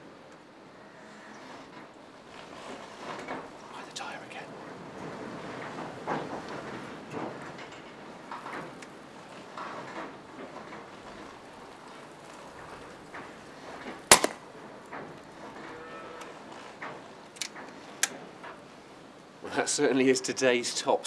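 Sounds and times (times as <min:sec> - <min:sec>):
air rifle shot: 0:14.1 - 0:14.4
pellet striking: 0:14.1 - 0:14.4.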